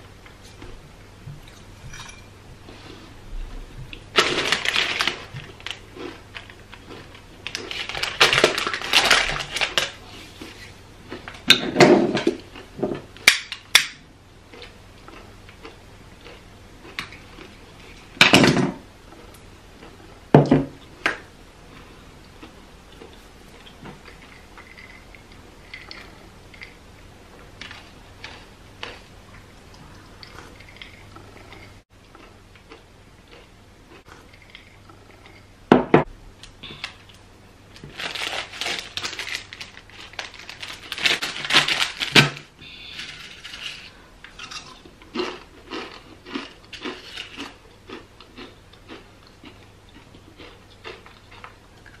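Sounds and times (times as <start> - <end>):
glass clinking: 1.8 - 2.3
chips crunching: 3.9 - 11.5, 22.4 - 26.8, 27.6 - 29.1, 36.8 - 51.6.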